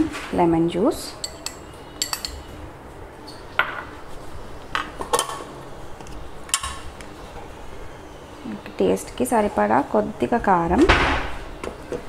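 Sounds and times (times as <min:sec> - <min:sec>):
spoon clinking against bowls: 0:01.1 - 0:02.6.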